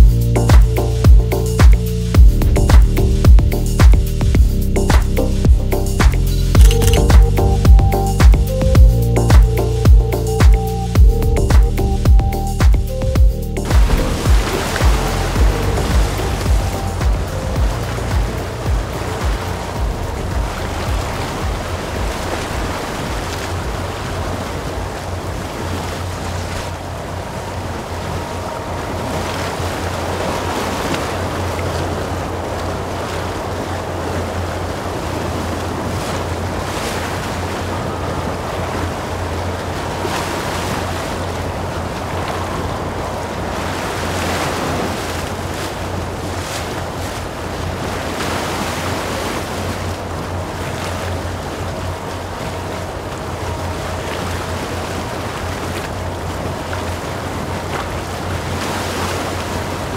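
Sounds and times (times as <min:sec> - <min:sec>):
heavy low rumble: 0:00.0 - 0:25.7
waves and surf: 0:00.0 - 0:59.9
wind buffeting microphone: 0:00.0 - 0:59.9.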